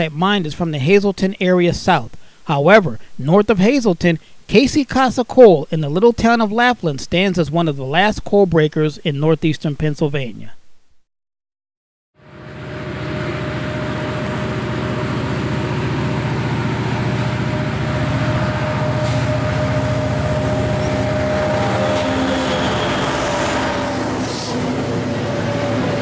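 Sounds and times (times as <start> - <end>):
locomotive engine rumble: 12.2 - 26.0
locomotive whine: 12.2 - 26.0.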